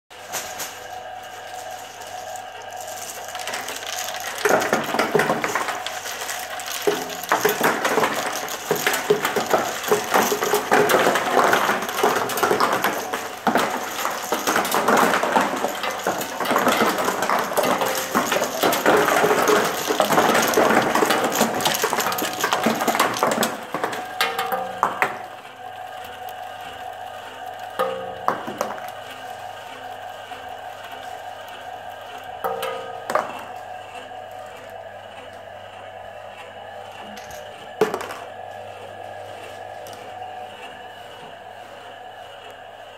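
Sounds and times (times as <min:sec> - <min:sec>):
plastic pieces clattering over rollers: 0:00.1 - 0:26.8, 0:27.4 - 0:29.5, 0:30.3 - 0:33.6, 0:37.1 - 0:38.3
steady machine hum: 0:00.1 - 0:42.9.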